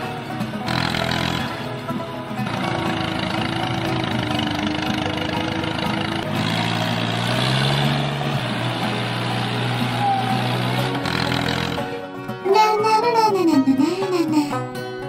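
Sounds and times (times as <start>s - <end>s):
motor running: 0.5s - 12.0s.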